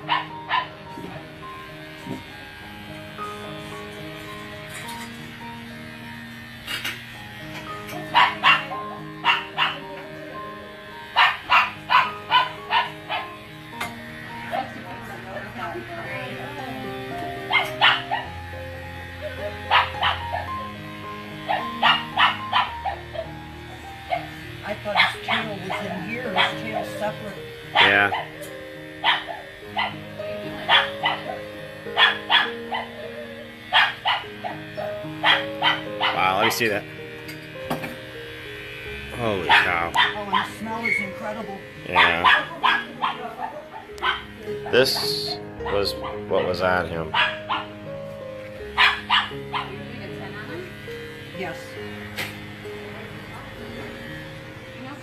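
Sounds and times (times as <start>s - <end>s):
background music: 0.0s - 55.0s
dog barking: 0.1s - 0.7s, 8.1s - 10.0s, 11.2s - 13.3s, 17.5s - 18.3s, 19.7s - 20.5s, 21.5s - 23.3s, 25.0s - 26.8s, 27.8s - 28.3s, 29.0s - 30.0s, 30.6s - 31.4s, 32.0s - 33.0s, 33.7s - 34.6s, 35.2s - 36.3s, 39.5s - 41.0s, 41.9s - 44.3s, 47.1s - 47.7s, 48.8s - 49.8s.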